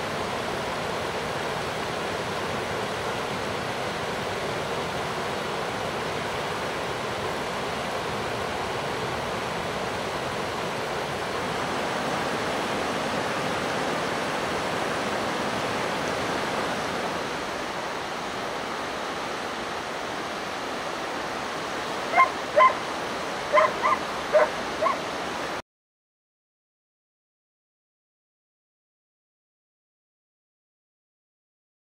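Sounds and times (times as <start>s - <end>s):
river water rushing: 0.0s - 25.6s
dog barking: 22.1s - 22.8s, 23.5s - 25.0s.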